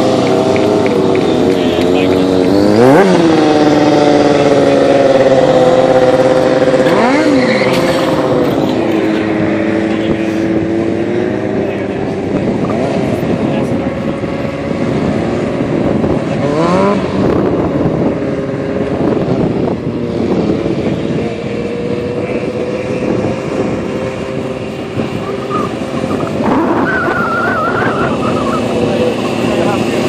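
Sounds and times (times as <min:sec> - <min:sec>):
motorbike engine revving: 0:00.0 - 0:30.0
wavering high squeal: 0:25.2 - 0:29.2.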